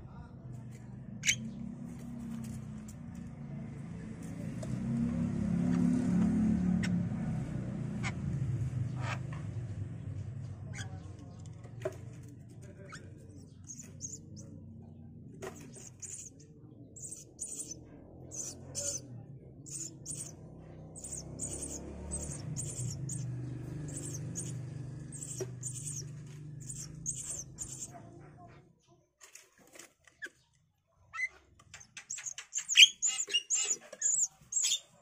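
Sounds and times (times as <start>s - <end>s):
nestlings begging chirps: 1.2s - 1.5s, 12.8s - 14.6s, 15.4s - 27.9s, 31.8s - 35.0s.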